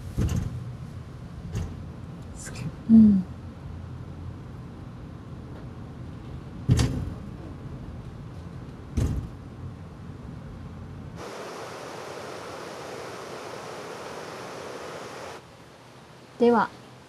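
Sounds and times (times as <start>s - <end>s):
cable car rumbling: 0.0s - 11.2s
river rapids rushing: 11.2s - 15.4s.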